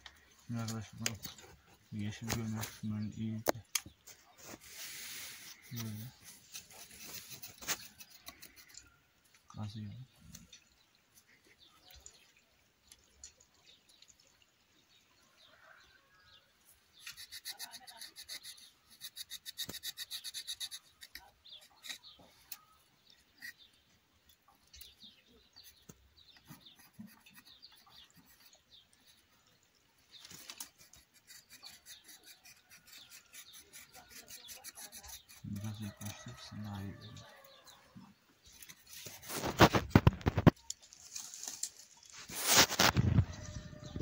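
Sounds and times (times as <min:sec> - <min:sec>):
knife scraping bark: 0:04.4 - 0:08.9, 0:17.0 - 0:23.8, 0:25.6 - 0:29.3, 0:30.2 - 0:37.8, 0:38.4 - 0:44.0.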